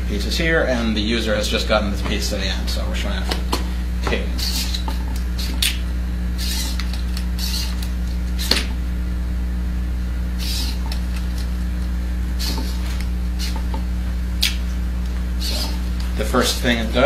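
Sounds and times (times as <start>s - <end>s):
steady low hum: 0.0s - 17.0s
servo motors whirring: 4.2s - 8.8s, 10.4s - 11.6s, 12.3s - 14.6s, 15.3s - 17.0s
sharp click: 5.4s - 5.8s, 14.4s - 14.6s.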